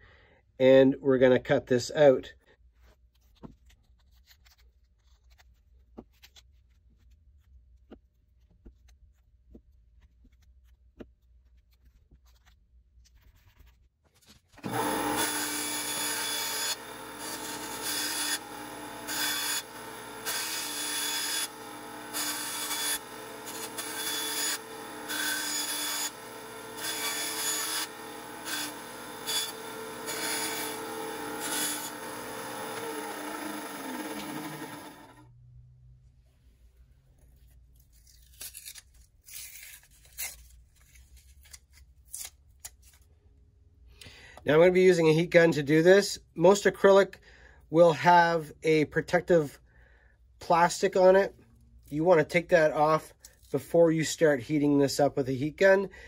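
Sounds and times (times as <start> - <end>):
band saw cutting plastic: 14.5 - 35.3.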